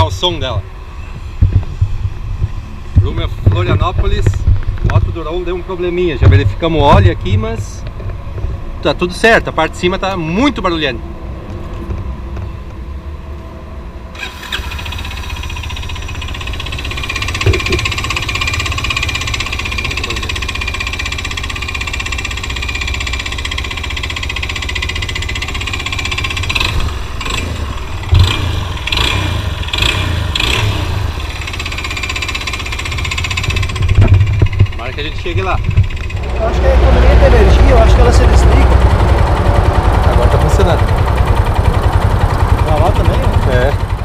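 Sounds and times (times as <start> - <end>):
motorcycle engine idling: 14.2 - 44.0.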